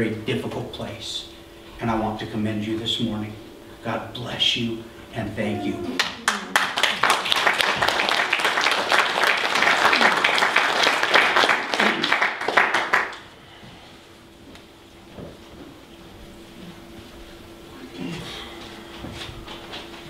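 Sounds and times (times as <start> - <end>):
crowd applauding: 5.9 - 13.3.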